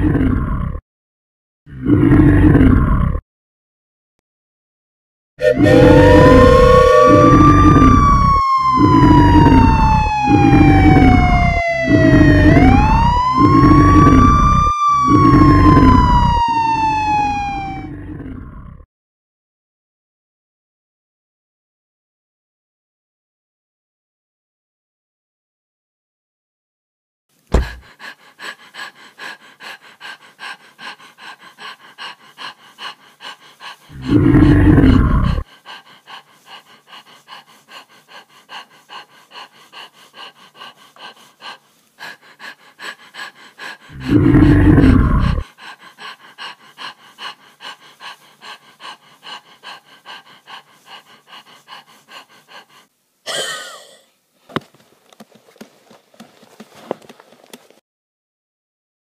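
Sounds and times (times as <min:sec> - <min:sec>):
long deep loud sound: 0:05.4 - 0:18.2
heavy rhythmic panting: 0:05.8 - 0:17.8, 0:27.5 - 0:52.9.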